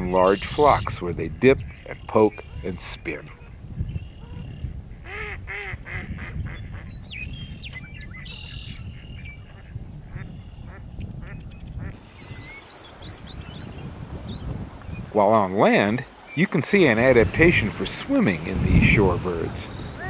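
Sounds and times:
birds calling: 0.0s - 20.0s
high bird chirps: 11.4s - 15.1s.

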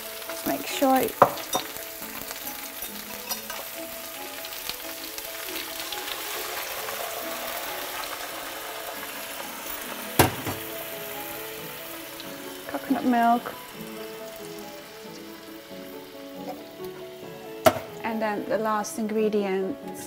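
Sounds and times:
stock pouring: 0.0s - 18.2s
faint background music: 0.0s - 20.0s
vegetables sizzling in pot: 0.0s - 20.0s
glass jug knocking on counter: 1.2s - 1.4s, 17.7s - 17.9s.

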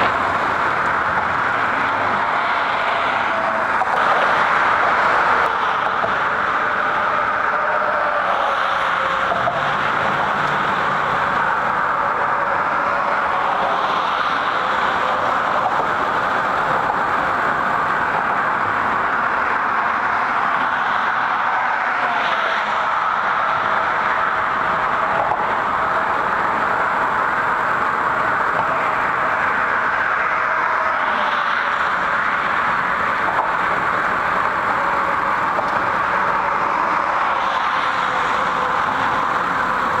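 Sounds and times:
rushing road and traffic noise: 0.0s - 40.0s.

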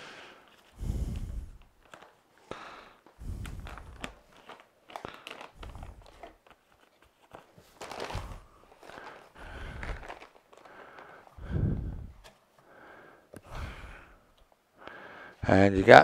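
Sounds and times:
paper rustling and crinkling: 1.6s - 11.4s.

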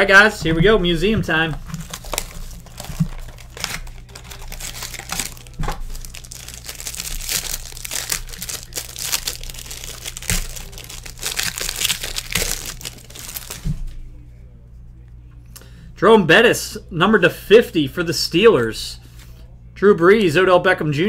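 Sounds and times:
foil wrapper crinkling: 1.5s - 13.9s.

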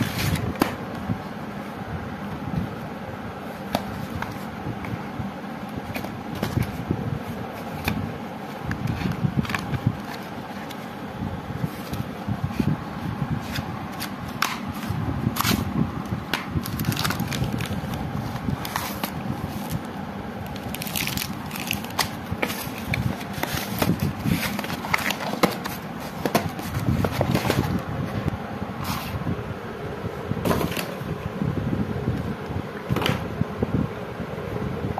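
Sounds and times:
wrapping crinkling: 16.6s - 19.9s, 20.5s - 25.8s.

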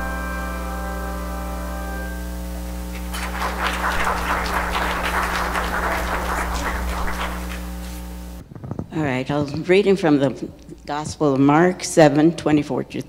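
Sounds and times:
congregation applauding: 2.9s - 8.1s.

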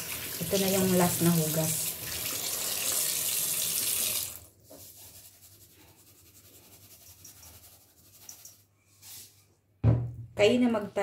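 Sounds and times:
tap water running into steel bowl: 0.0s - 4.4s.

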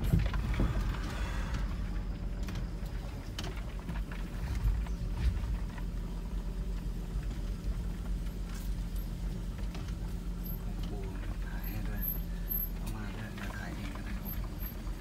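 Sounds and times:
knocks and rattles: 0.0s - 6.0s
van engine and road rumble: 0.0s - 15.0s.

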